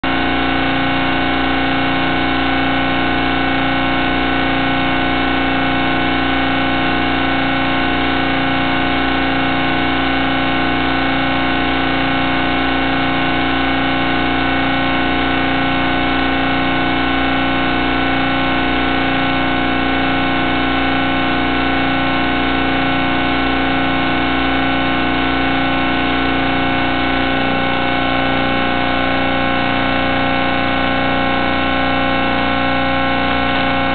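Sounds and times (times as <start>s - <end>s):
electrical hum and buzz: 0.0s - 33.9s.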